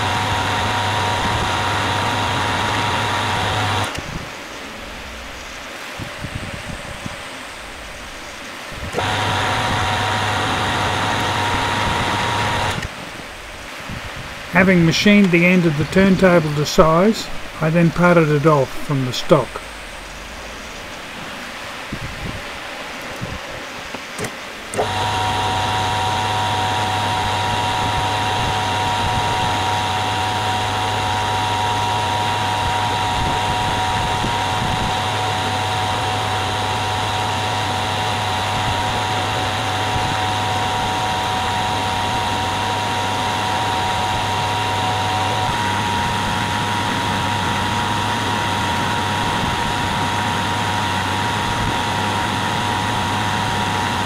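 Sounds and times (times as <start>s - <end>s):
metal lathe whine: 0.0s - 4.0s, 7.0s - 12.9s, 24.6s - 54.0s.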